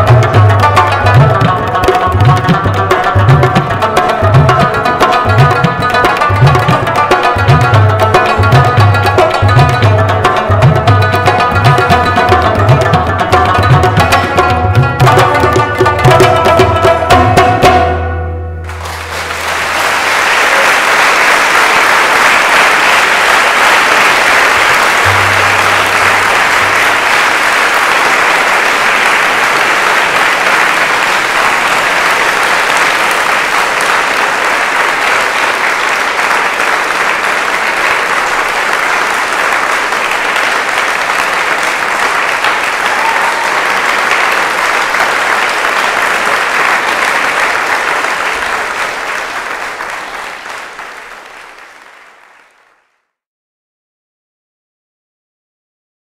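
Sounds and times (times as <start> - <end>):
audience applauding: 0.0 - 16.9, 18.6 - 53.1
tabla stroke: 0.0 - 19.7, 25.0 - 27.0.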